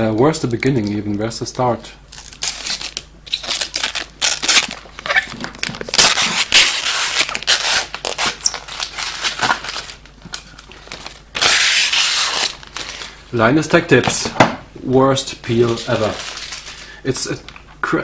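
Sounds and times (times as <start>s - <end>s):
plastic film crinkling and tearing: 2.1s - 13.2s, 15.5s - 16.9s.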